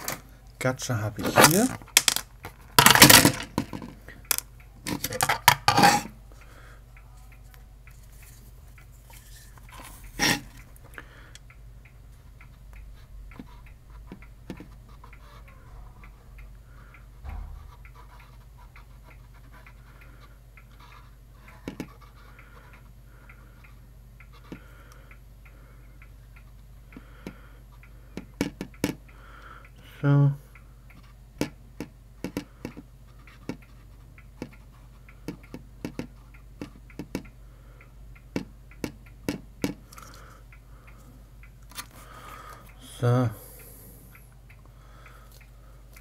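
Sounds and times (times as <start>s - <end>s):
steady low hum: 0.0s - 46.0s
circuit board clattering on desk: 1.5s - 4.4s
sharp knock: 17.2s - 17.8s.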